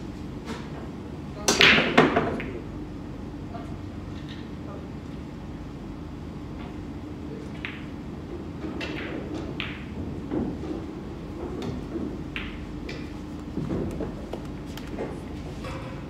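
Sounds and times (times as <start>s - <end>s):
room hum: 0.0s - 16.0s
pool balls clicking: 8.8s - 15.2s.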